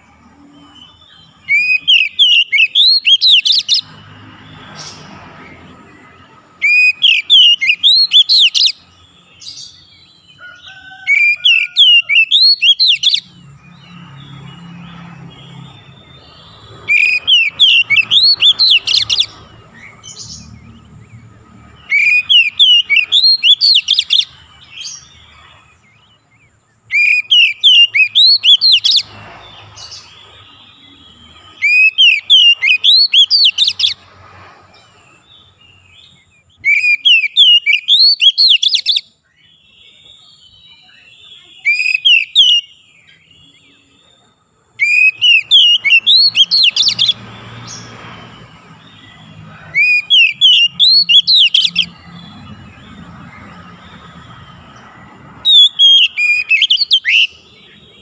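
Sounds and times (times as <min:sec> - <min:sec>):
bird singing whistled phrases: 0:00.5 - 0:03.9, 0:06.6 - 0:10.0, 0:10.9 - 0:20.6, 0:21.8 - 0:25.0, 0:26.9 - 0:29.1, 0:29.8 - 0:34.0, 0:36.0 - 0:44.0, 0:44.8 - 0:47.9, 0:48.8 - 0:52.5, 0:55.4 - 0:57.8.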